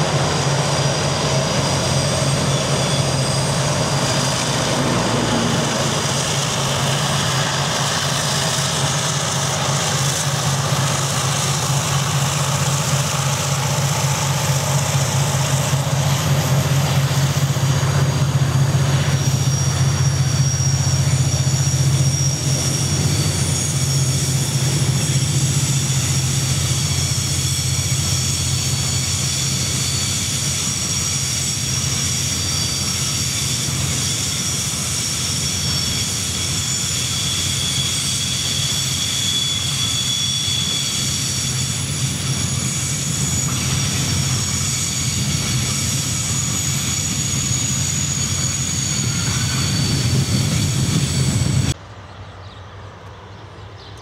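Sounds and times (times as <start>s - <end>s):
high wheel squeal: 0.0s - 51.8s
locomotive engine drone: 0.0s - 54.0s.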